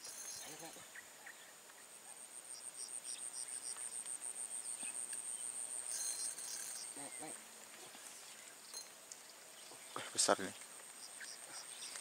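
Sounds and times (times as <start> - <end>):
insect pulsing trill: 0.0 - 1.3, 2.1 - 7.4.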